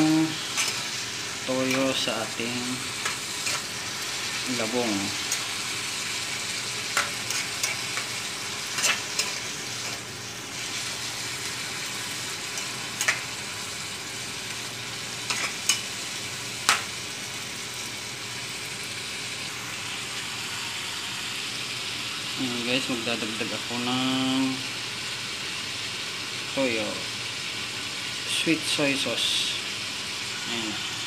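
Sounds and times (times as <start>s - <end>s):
food sizzling in a frying pan: 0.0s - 31.0s
metal spatula scraping a pan: 0.4s - 2.0s, 2.9s - 3.9s, 6.9s - 10.1s, 15.3s - 15.9s.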